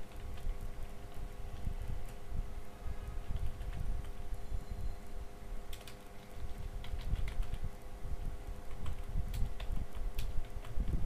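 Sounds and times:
low steady hum: 0.0s - 11.0s
keyboard keys clicking: 5.7s - 7.7s, 8.7s - 11.0s.

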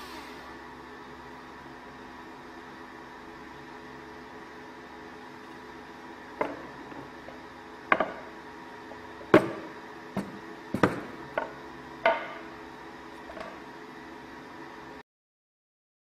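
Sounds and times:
steady background hum: 0.0s - 15.0s
wooden trays knocking together: 9.4s - 12.4s.

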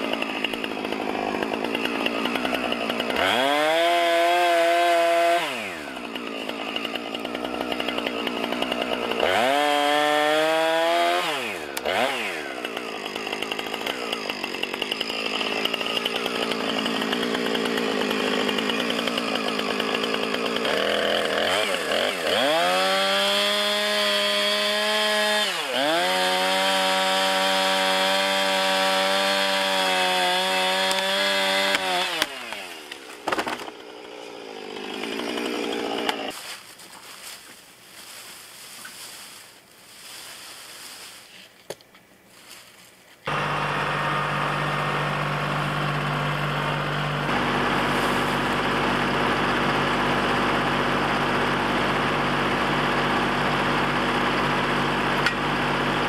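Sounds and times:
chainsaw cutting tree trunk: 0.0s - 41.2s, 43.3s - 56.0s
tree cracking: 30.2s - 41.2s
tractor engine idling: 43.3s - 56.0s.

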